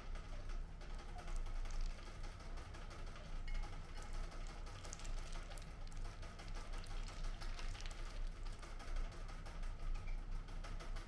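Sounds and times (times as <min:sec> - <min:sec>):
low steady hum: 0:00.0 - 0:11.0.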